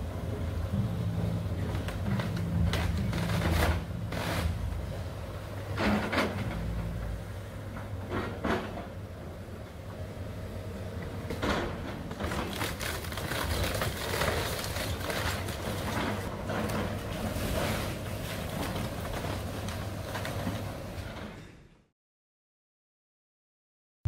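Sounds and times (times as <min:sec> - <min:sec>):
excavator engine running: 0:00.0 - 0:21.3
wood cracking and splintering: 0:12.2 - 0:16.3
debris crashing down: 0:12.3 - 0:16.3.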